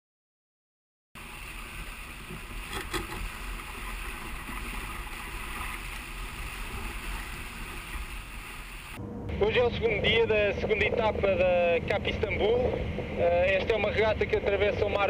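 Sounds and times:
hull rushing through water: 1.2s - 9.0s.

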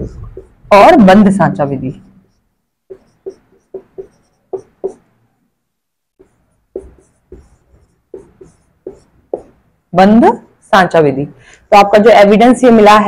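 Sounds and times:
marker pen writing on whiteboard: 0.0s - 5.4s, 6.2s - 9.8s.

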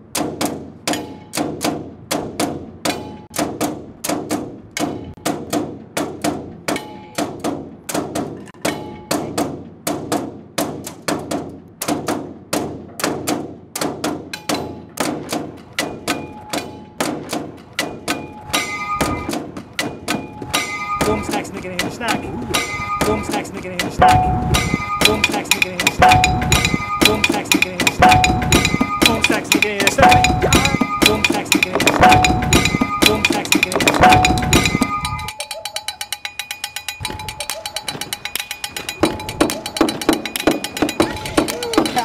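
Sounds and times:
metallic pings and clangs: 0.9s - 1.4s, 2.9s - 3.4s, 6.7s - 7.4s, 8.4s - 9.4s, 14.3s - 15.0s, 15.7s - 17.0s, 17.8s - 42.0s.

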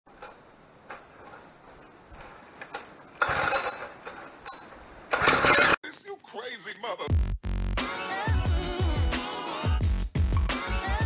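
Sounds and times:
recoil starter pulls: 0.1s - 5.8s
engine noise bursts: 3.1s - 5.8s.

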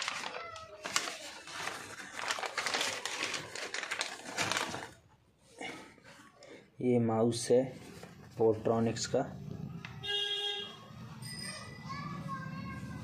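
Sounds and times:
packaging crinkling and rustling: 0.0s - 5.1s.

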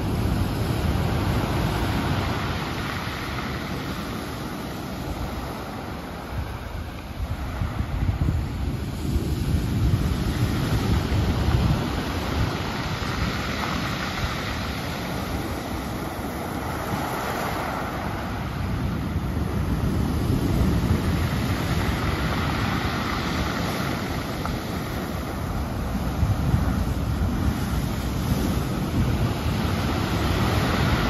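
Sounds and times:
ocean surf breaking against rocks: 0.0s - 31.0s
wind rumbling on microphone: 0.0s - 31.0s.

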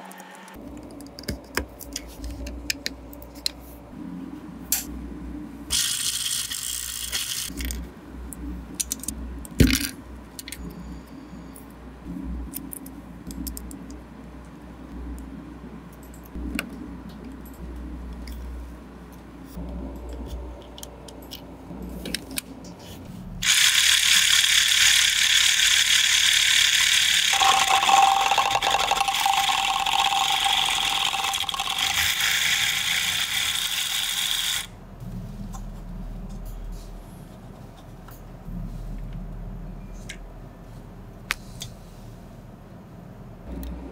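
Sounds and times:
toy drill motor whirring: 5.7s - 7.5s, 23.4s - 34.7s
plastic bricks clicking together: 23.4s - 34.7s
steady tone: 27.3s - 33.2s.

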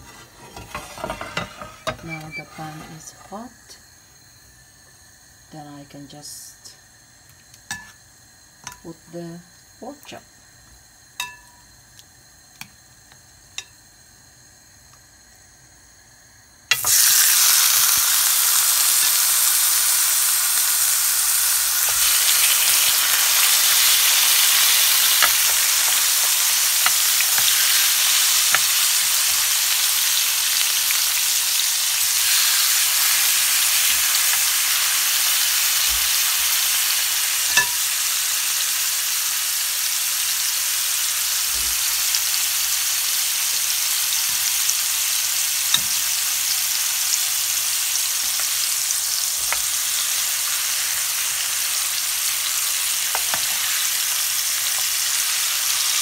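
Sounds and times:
meat sizzling on grill pan: 15.9s - 56.0s.

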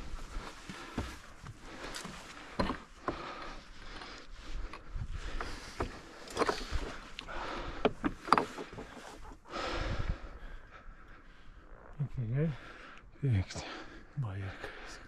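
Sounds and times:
climber scrambling over rock: 4.7s - 9.3s.

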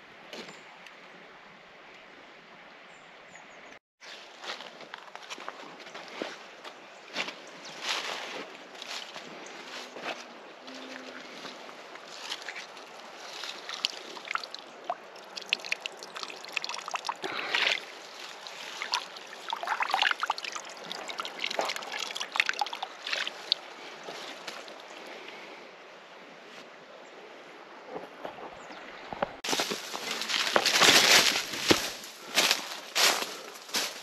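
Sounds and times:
water trickling and sloshing: 10.6s - 25.4s.

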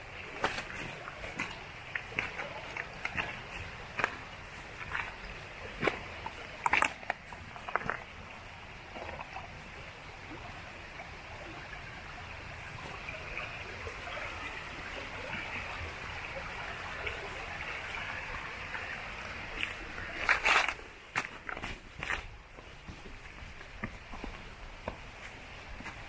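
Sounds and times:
stream rushing over rocks: 0.0s - 26.0s
footsteps on stones: 0.2s - 8.3s, 19.5s - 26.0s.

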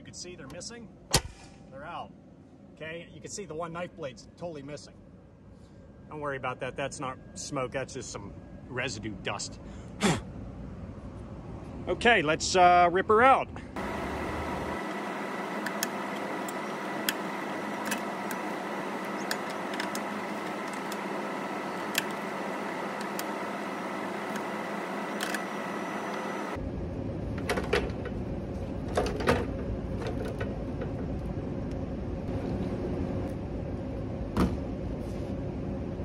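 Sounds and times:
hvac equipment hum: 13.5s - 36.0s.

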